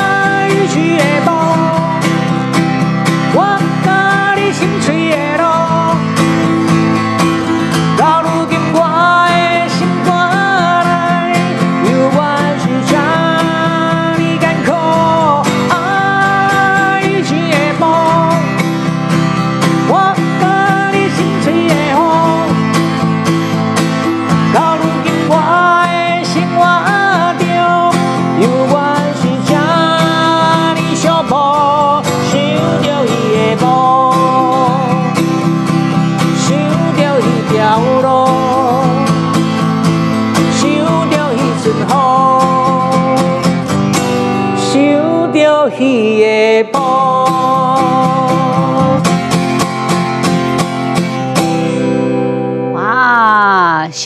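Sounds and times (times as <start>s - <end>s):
man singing a ballad: 0.0s - 23.2s, 24.1s - 49.6s, 52.8s - 54.0s
acoustic guitar strumming: 0.0s - 54.0s.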